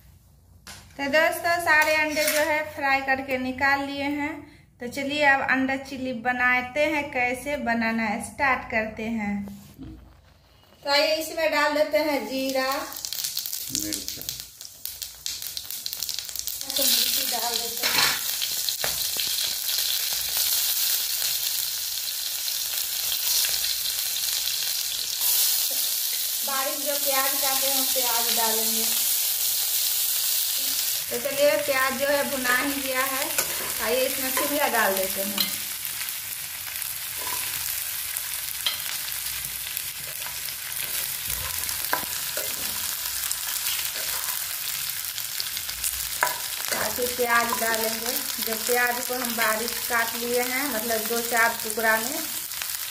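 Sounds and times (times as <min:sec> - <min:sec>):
spices sizzling in hot oil: 0:01.0 - 0:03.4, 0:10.8 - 0:52.9
spatula scraping a pan: 0:33.3 - 0:34.6.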